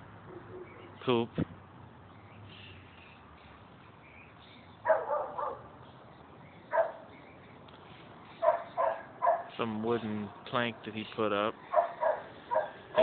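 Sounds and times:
dog barking: 4.8s - 5.7s, 6.7s - 7.1s, 8.4s - 9.6s, 11.7s - 13.0s.

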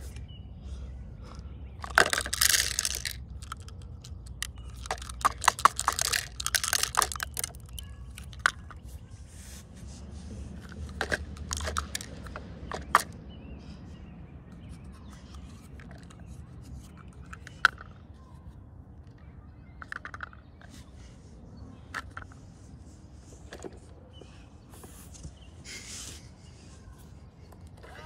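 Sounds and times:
plastic toy clicking and rattling: 1.8s - 8.9s, 10.6s - 13.2s, 15.0s - 18.0s, 19.1s - 20.8s.

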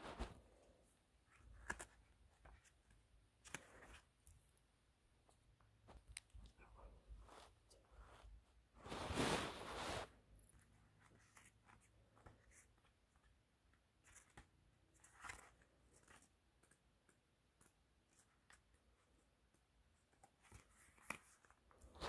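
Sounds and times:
book pages rustling: 0.0s - 4.6s, 5.2s - 22.0s
light clicks of book handling: 1.3s - 4.4s, 10.5s - 21.9s.

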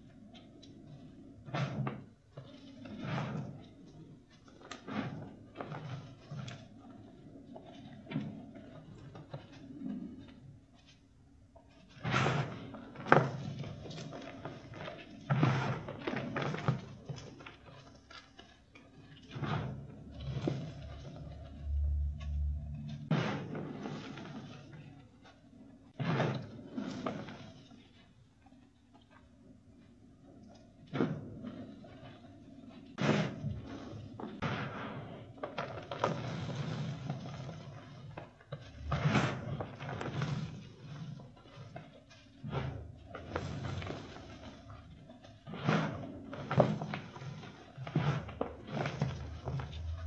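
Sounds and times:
chalk crunching and crumbling: 11.7s - 28.1s, 31.0s - 50.0s.

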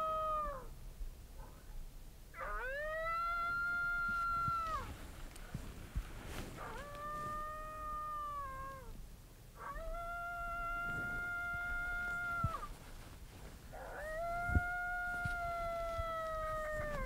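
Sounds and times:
coyote howl call: 0.0s - 0.8s, 2.4s - 4.9s, 6.6s - 9.0s, 9.6s - 12.8s, 13.7s - 17.0s.

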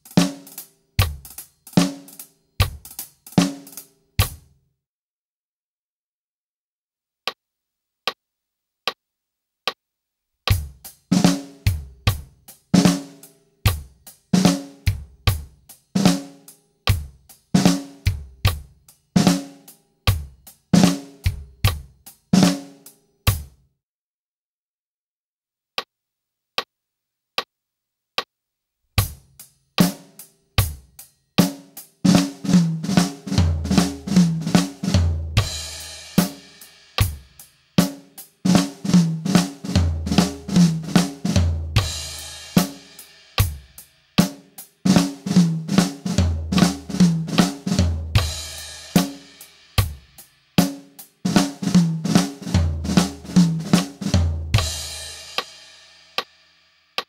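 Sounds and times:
drum kit playing: 0.0s - 4.4s, 10.5s - 23.6s, 29.0s - 57.0s.

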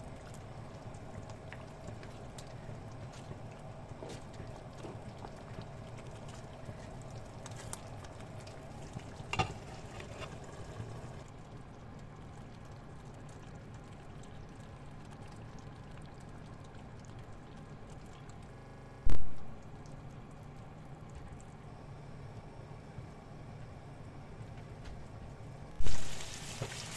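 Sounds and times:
curry simmering in a pan: 0.0s - 18.6s, 25.8s - 26.9s.

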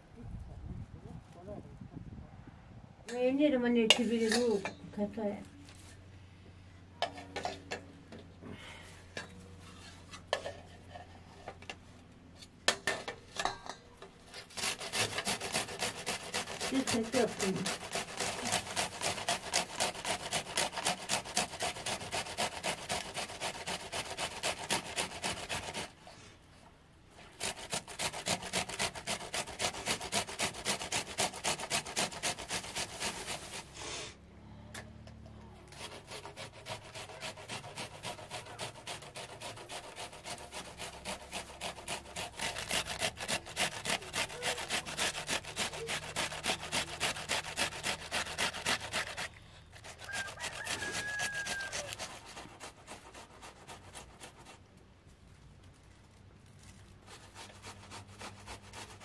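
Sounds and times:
rhythmic scraping strokes: 14.4s - 26.0s, 27.4s - 33.8s, 35.7s - 54.5s.

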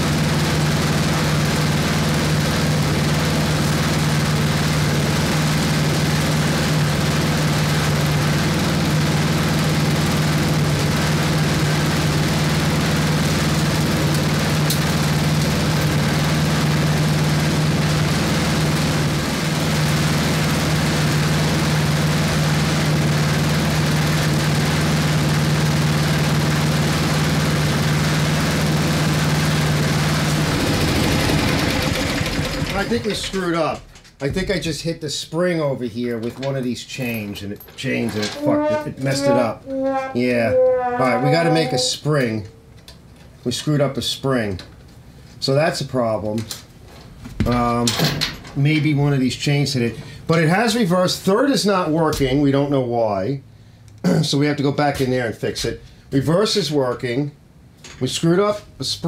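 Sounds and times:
snowblower engine running: 0.0s - 33.4s.

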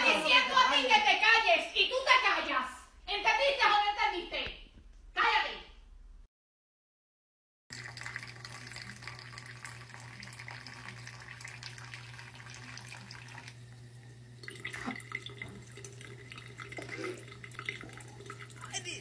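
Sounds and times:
water trickling into sink: 7.7s - 19.0s.

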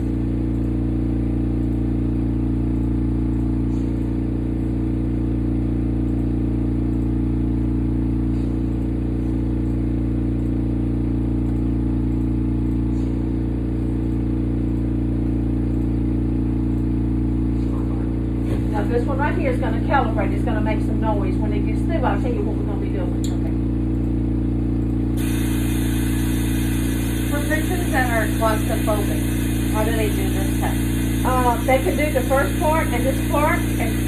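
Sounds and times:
machine hum: 0.0s - 34.0s.

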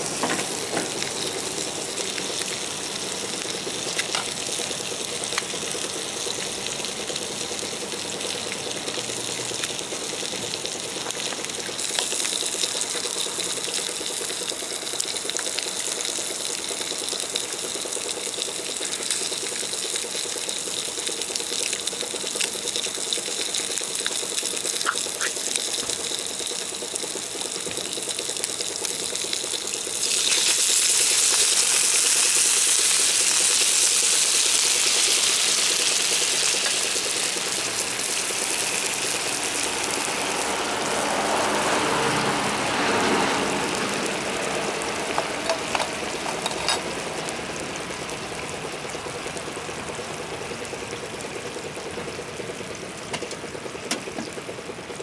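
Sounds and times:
bubbling simmer: 0.0s - 55.0s
pork sizzling in a skillet: 0.0s - 55.0s
liquid hissing in hot pan: 11.7s - 46.9s.

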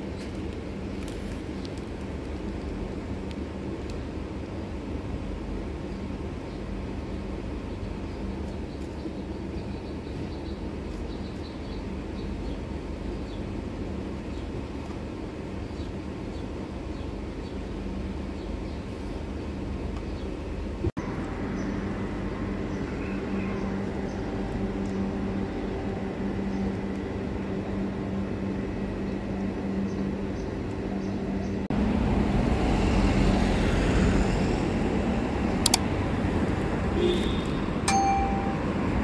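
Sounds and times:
steady low hum: 0.0s - 39.0s
traffic: 0.0s - 39.0s
sharp clicks: 35.6s - 35.8s.

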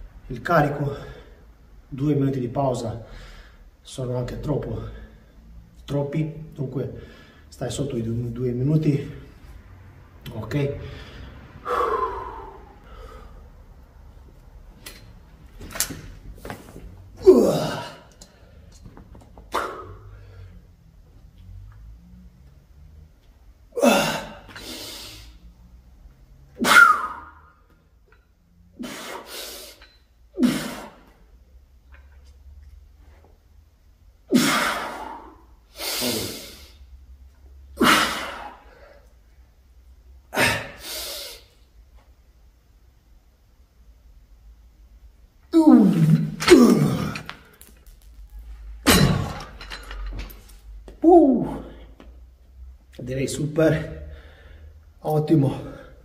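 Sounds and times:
man breathing hard: 3.1s - 3.8s, 7.0s - 7.5s, 10.8s - 13.7s, 54.0s - 55.0s
man grunting exhale: 10.8s - 13.5s, 17.2s - 18.4s, 23.8s - 25.4s, 34.4s - 36.8s, 37.8s - 39.0s.

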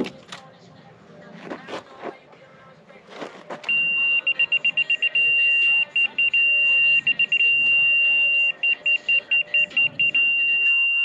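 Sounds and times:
high-pitched steady tone: 3.7s - 11.0s
rapid beeps: 3.7s - 11.0s.

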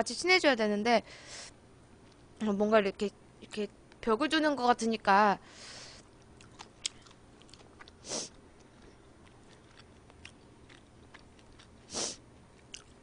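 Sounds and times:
chewing and mouth clicks: 6.0s - 11.9s, 12.5s - 13.0s.

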